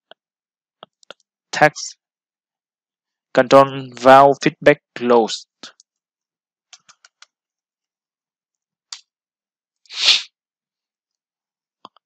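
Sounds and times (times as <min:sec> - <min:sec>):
short hissing puff: 0:09.9 - 0:10.3.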